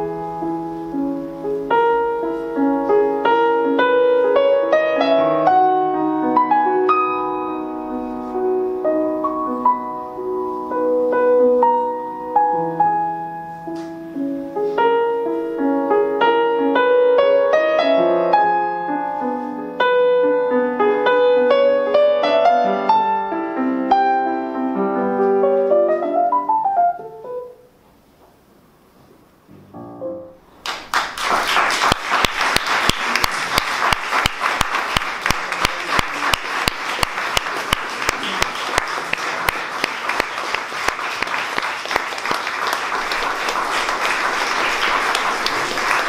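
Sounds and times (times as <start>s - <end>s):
solo grand piano piece: 0.0s - 30.9s
audience applause: 30.6s - 46.0s.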